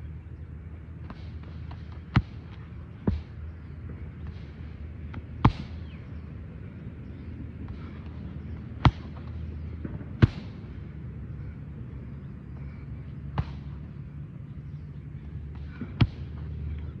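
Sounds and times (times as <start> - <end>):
low background rumble: 0.0 - 17.0
strikes smacking pads: 1.0 - 3.3, 5.1 - 5.8, 8.8 - 10.6, 13.4 - 13.8.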